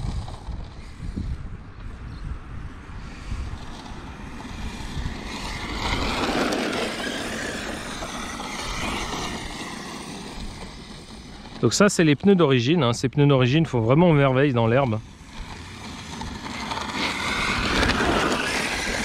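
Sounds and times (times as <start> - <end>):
steady low rumble: 0.0 - 19.0
electric motor whining: 3.2 - 12.6, 13.5 - 19.0.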